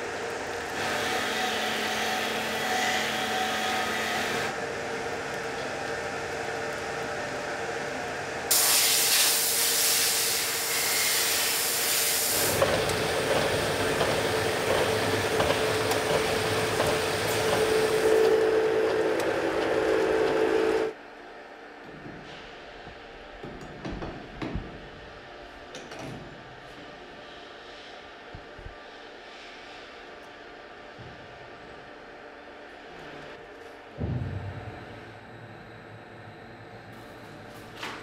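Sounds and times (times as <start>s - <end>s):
hiss of spraying water: 8.5s - 12.6s
polishing machine grinding stone: 12.3s - 20.9s.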